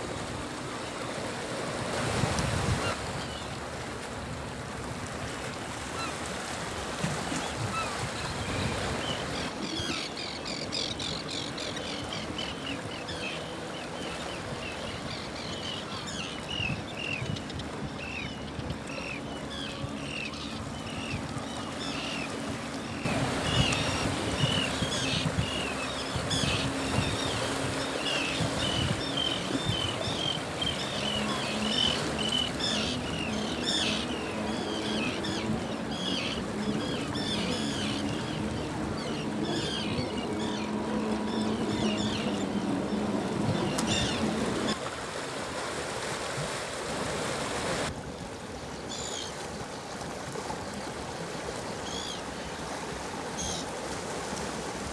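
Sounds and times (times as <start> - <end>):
sea water splashing over rocks: 0.0 - 17.2, 18.8 - 54.9.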